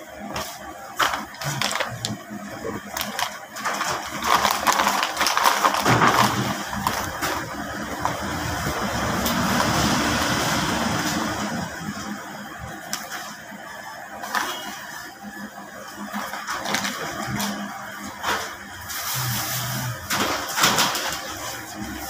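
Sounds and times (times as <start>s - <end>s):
foil packet crinkling: 1.0s - 8.5s, 16.2s - 17.6s.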